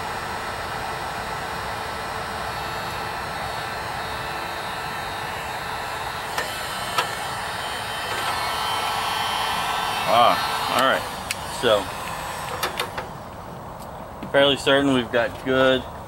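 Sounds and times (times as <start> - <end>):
heat gun blowing: 0.0 - 13.6
sharp clicks: 10.7 - 13.1.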